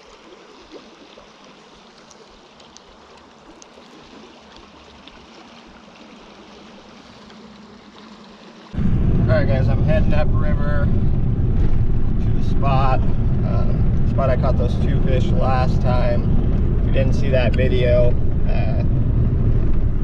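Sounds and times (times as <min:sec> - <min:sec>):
river flowing over riffles: 0:00.0 - 0:20.0
faint clicks: 0:01.9 - 0:03.9
loud vehicle noise: 0:08.8 - 0:20.0.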